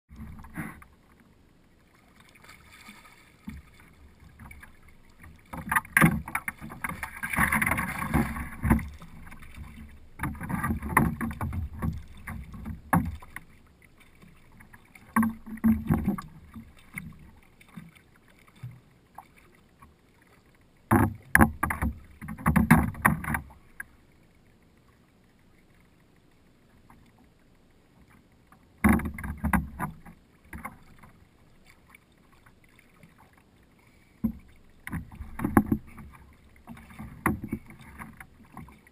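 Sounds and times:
knocks and rustling of fishing gear: 5.4s - 13.5s, 14.6s - 17.9s, 20.9s - 23.6s, 28.8s - 31.1s, 34.2s - 38.9s.

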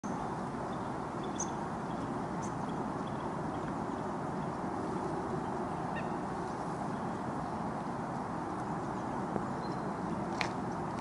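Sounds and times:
faint high bird chirps: 0.0s - 3.3s
steady outdoor rushing noise: 0.1s - 11.0s.

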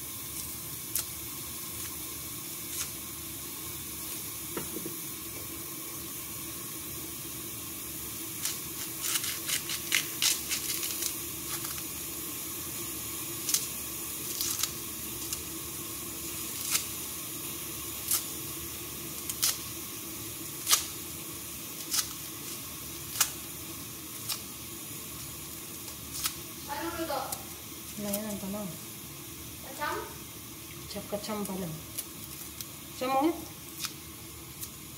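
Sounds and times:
steady background hiss: 0.0s - 34.9s
garlic skin crackling: 0.3s - 3.1s, 8.3s - 12.2s, 13.4s - 28.8s, 31.2s - 32.9s, 33.5s - 34.9s.

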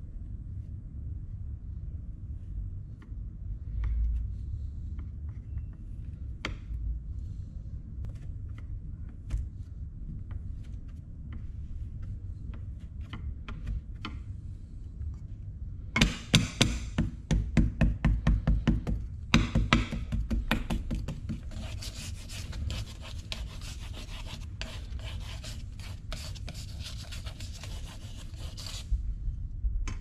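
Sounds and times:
low rumble: 28.8s - 30.0s.

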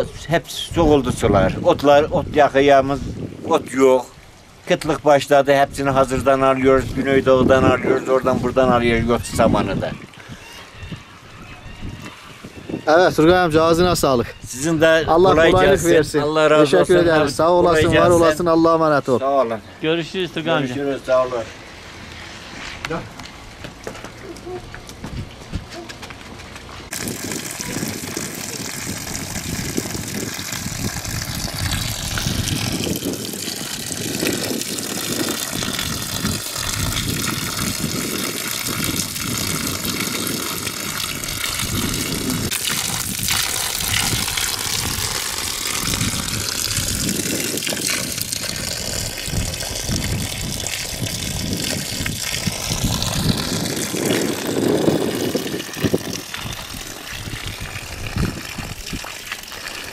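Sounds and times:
water splashing into trough: 26.9s - 59.9s.

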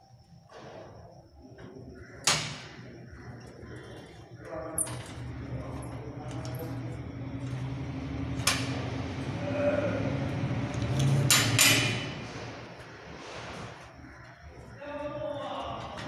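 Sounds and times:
steady low hum: 0.0s - 16.0s
metal tools clinking on steel: 10.8s - 12.2s.

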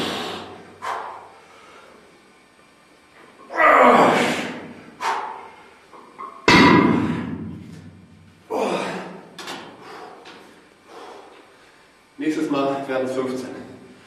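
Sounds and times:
loud gasping breaths: 0.0s - 2.0s, 9.7s - 11.8s.

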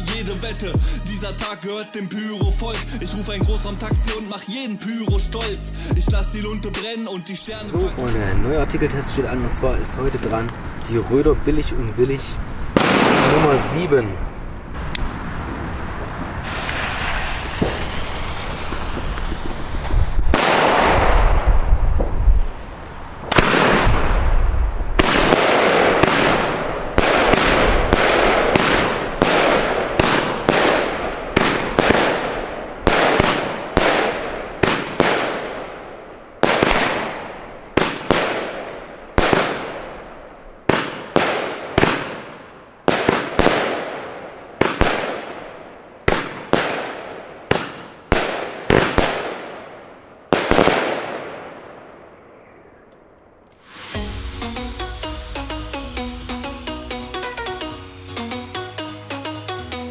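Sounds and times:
firework bangs with crackling stars: 12.7s - 13.8s, 16.0s - 52.3s, 53.6s - 58.5s.

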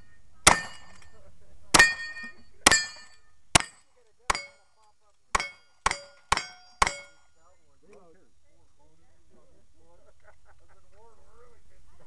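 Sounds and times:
steel target ringing: 0.0s - 7.4s.

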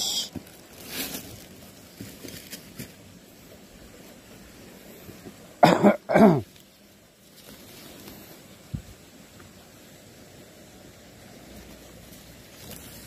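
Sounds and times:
man coughing: 5.6s - 6.5s.

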